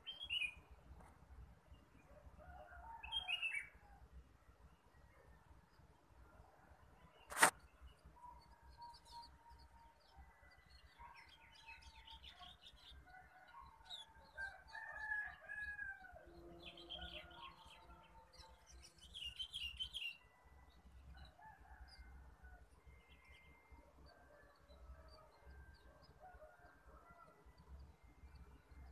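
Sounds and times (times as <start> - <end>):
songbirds chirping: 0.0 - 28.9
distant rooster crowing: 2.1 - 3.8, 13.1 - 17.4.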